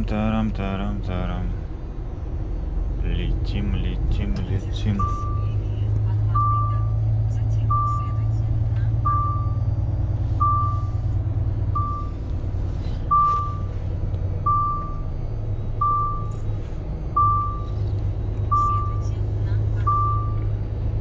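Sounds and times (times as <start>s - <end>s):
truck engine running: 0.0s - 21.0s
electronic warning beeps: 4.8s - 5.6s, 6.3s - 7.0s, 7.6s - 8.2s, 9.0s - 9.7s, 10.4s - 11.0s, 11.8s - 12.2s, 13.1s - 13.7s, 14.4s - 15.1s, 15.8s - 16.4s, 17.1s - 17.8s, 18.5s - 19.1s, 19.8s - 20.5s.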